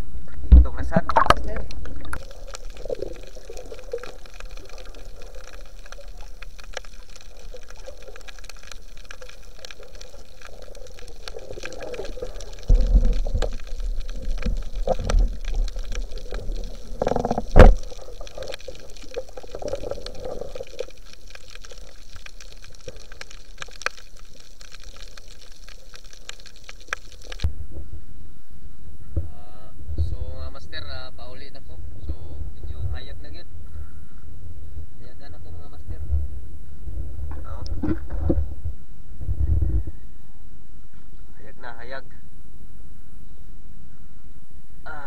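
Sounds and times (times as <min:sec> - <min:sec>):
muffled underwater water noise: 0:00.0 - 0:45.0
dull low knocks and thumps: 0:35.9 - 0:40.0.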